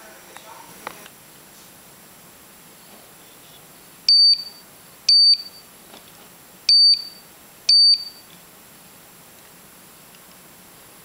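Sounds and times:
high-pitched alarm beeps: 0:04.1 - 0:05.7, 0:06.7 - 0:08.3.

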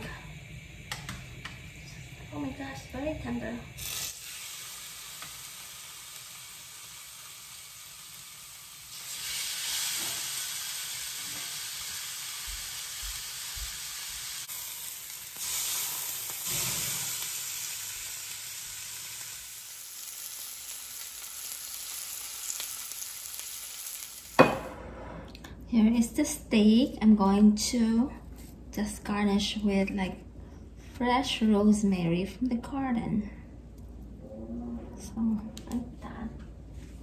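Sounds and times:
steaks sizzling in a grill pan: 0:02.4 - 0:24.4.

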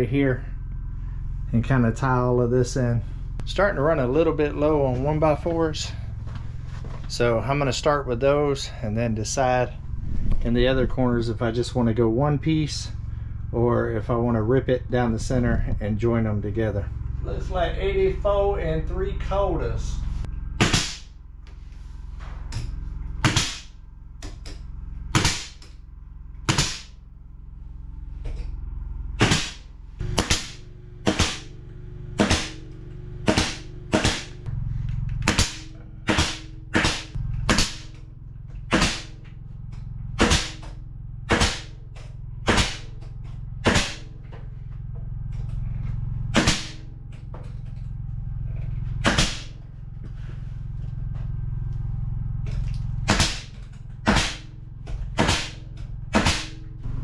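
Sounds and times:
low steady hum: 0:00.0 - 0:57.0
nail gun shots: 0:20.6 - 0:21.0, 0:23.2 - 0:23.6, 0:25.2 - 0:25.6, 0:26.5 - 0:26.9, 0:29.2 - 0:29.6, 0:30.2 - 0:31.5, 0:32.2 - 0:32.6, 0:33.3 - 0:34.3, 0:35.2 - 0:37.9, 0:38.7 - 0:39.1, 0:40.2 - 0:40.6, 0:41.3 - 0:41.7, 0:42.5 - 0:42.9, 0:43.6 - 0:44.0, 0:46.4 - 0:46.8, 0:49.0 - 0:49.5, 0:53.1 - 0:53.5, 0:54.1 - 0:54.5, 0:55.2 - 0:56.5.

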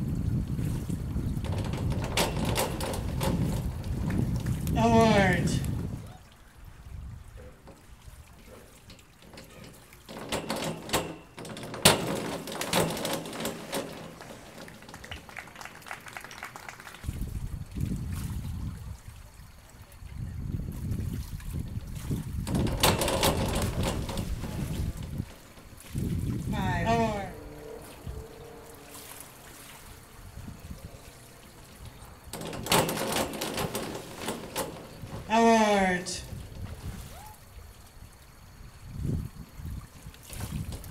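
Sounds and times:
diving board clattering: 0:00.0 - 0:06.0, 0:07.0 - 0:17.1, 0:21.5 - 0:37.3
water splashing: 0:00.0 - 0:40.9.

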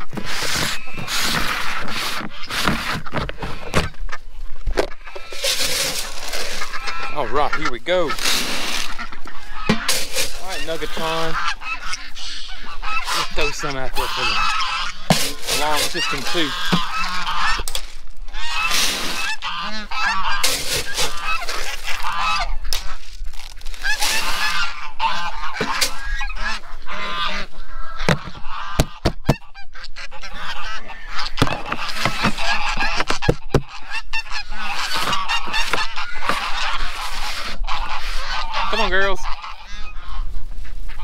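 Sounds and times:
geese honking: 0:00.0 - 0:41.0
sharp knocks: 0:28.1 - 0:29.4.

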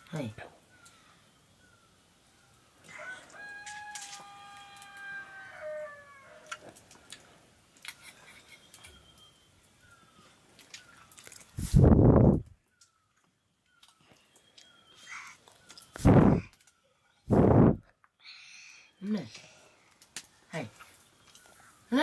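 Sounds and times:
rooster crowing: 0:02.9 - 0:06.6.

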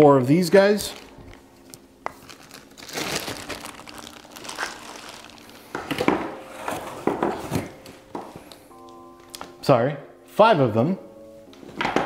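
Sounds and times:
plastic packaging crinkling: 0:00.6 - 0:08.5.

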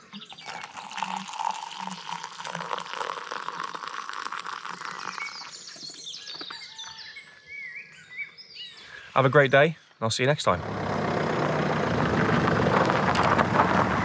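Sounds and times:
water pouring into a mug: 0:00.2 - 0:06.0.

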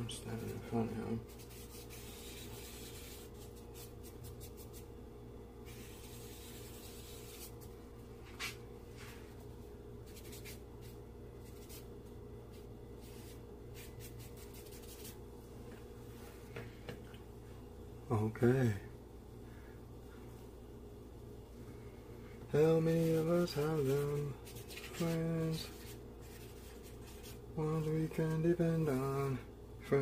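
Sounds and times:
steady low hum: 0:00.0 - 0:30.0
charcoal scratching on paper: 0:01.3 - 0:04.8, 0:05.7 - 0:07.7, 0:10.0 - 0:11.9, 0:13.0 - 0:15.2, 0:23.0 - 0:29.0.

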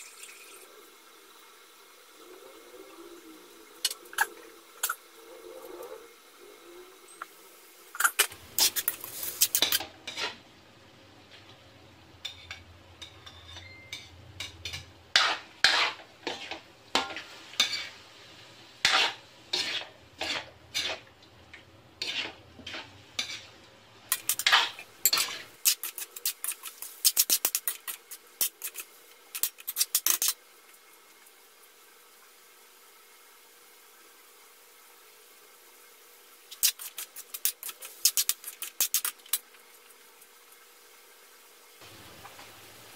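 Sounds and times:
metal spatula scraping a wok: 0:08.0 - 0:10.4, 0:12.2 - 0:18.0, 0:18.8 - 0:21.1, 0:22.0 - 0:30.4, 0:36.5 - 0:39.4.

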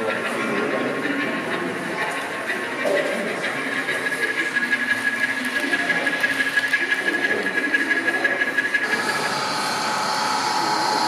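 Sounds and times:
model train wheels clicking: 0:00.0 - 0:11.0
steady high whine: 0:06.1 - 0:11.0.

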